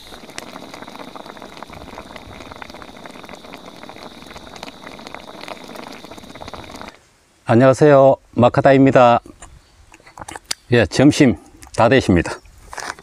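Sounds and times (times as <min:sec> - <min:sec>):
stew boiling with popping bubbles: 0:00.0 - 0:07.0.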